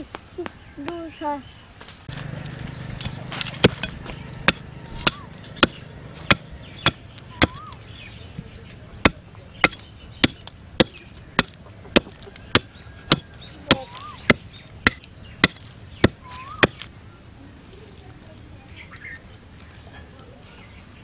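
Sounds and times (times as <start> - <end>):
metal blade chopping wooden stick: 2.1 - 7.8, 9.0 - 16.8.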